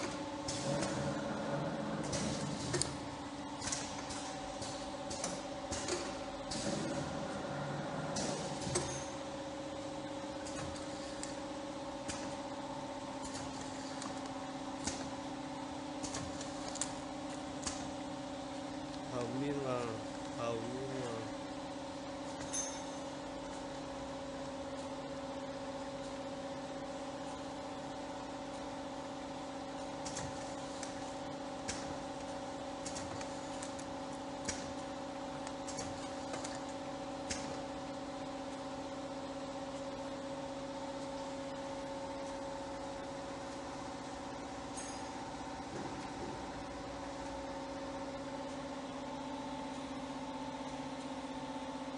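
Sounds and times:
machine motor hum: 0.0s - 22.5s.

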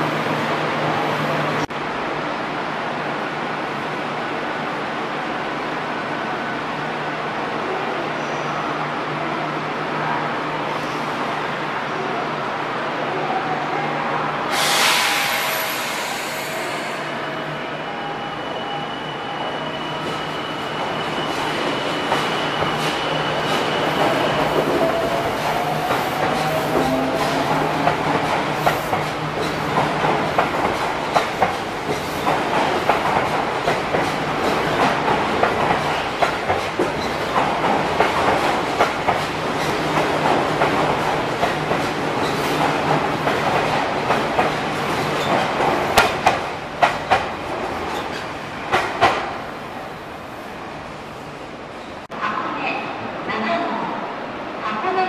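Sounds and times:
train wheels rumbling on rail: 19.6s - 49.9s.

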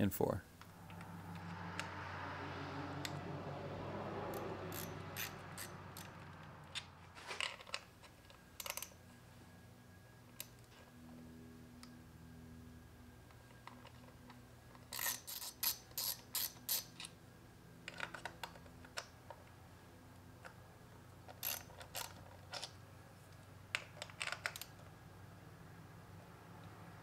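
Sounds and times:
ratchet pawl clicking: 4.3s - 6.9s, 14.8s - 17.1s, 21.3s - 22.6s.

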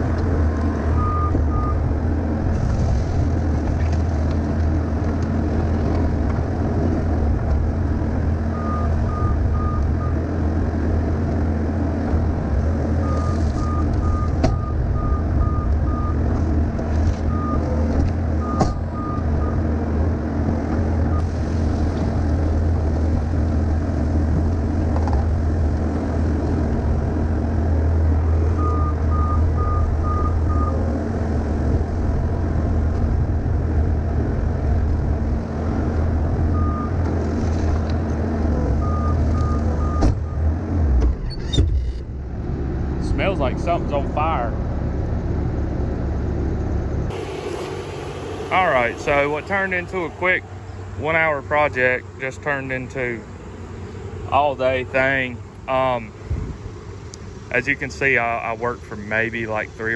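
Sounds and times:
diesel engine running: 0.0s - 59.9s
backup alarm beeping: 0.9s - 1.8s, 8.5s - 10.2s, 13.0s - 16.2s, 28.6s - 30.8s, 38.8s - 40.4s.

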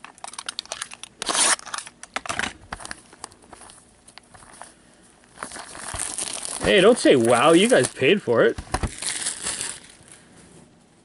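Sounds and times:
packaging crinkling: 0.0s - 10.3s
cardboard tearing: 0.2s - 2.5s, 5.4s - 10.0s.

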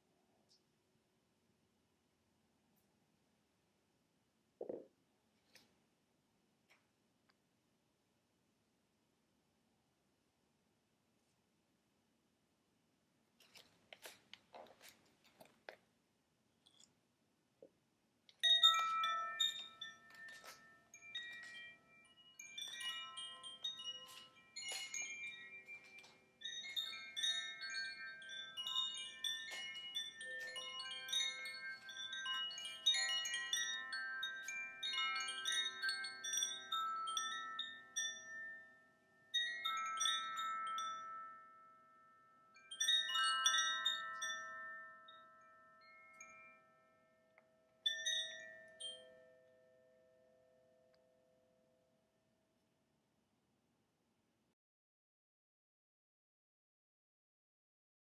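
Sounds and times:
bright metallic chimes tinkling: 18.4s - 50.6s
crystal singing bowls ringing: 18.4s - 50.6s.

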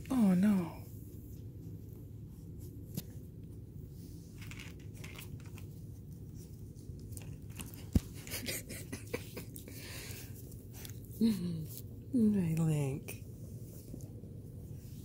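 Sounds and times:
small clicks and rustles: 4.2s - 8.4s.

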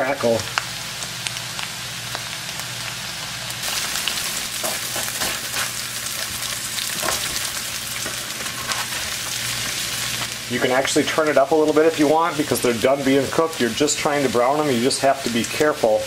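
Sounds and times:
potatoes sizzling in skillet: 0.0s - 16.0s
spatula scraping: 4.0s - 10.3s.

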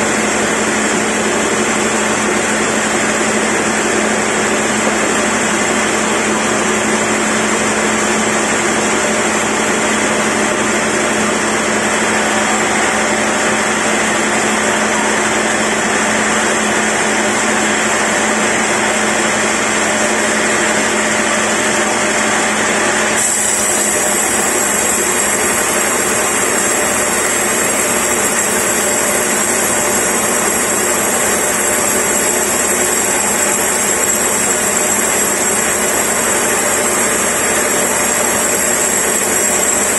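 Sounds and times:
band saw cutting log: 9.8s - 39.9s.

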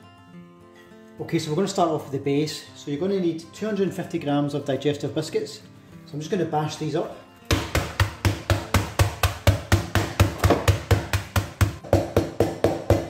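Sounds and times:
rolling pin pounding biscuits in bag: 7.5s - 13.0s.

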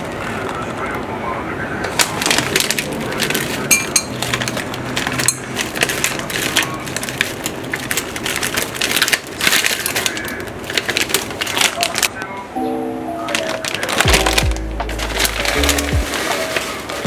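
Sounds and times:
plastic bag crinkling: 1.8s - 12.4s, 13.2s - 17.0s
frozen berries rattling into glass: 1.9s - 12.2s.

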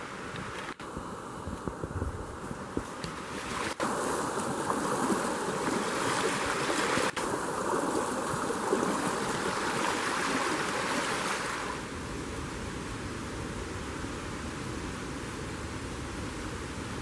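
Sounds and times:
boots sloshing through water: 2.8s - 11.8s
stream rushing over rocks: 2.8s - 12.0s.

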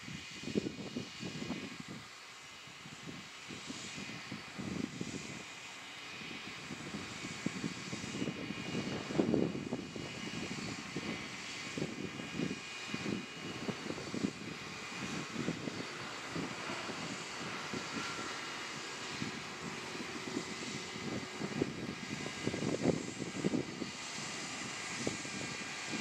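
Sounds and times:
faint steady whine: 0.1s - 26.0s.

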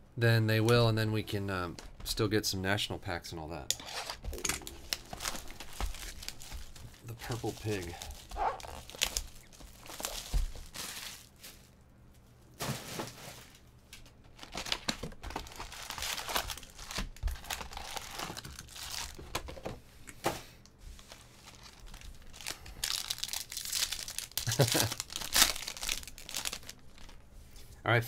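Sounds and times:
card packs being handled: 3.8s - 11.7s, 12.6s - 19.8s, 21.0s - 27.2s
plastic wrap crinkling and tearing: 3.8s - 11.7s, 12.6s - 19.5s, 21.0s - 27.2s.

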